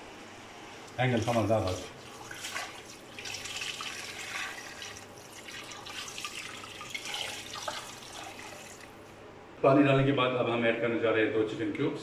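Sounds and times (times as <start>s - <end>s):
water pouring into a pot: 1.0s - 9.0s.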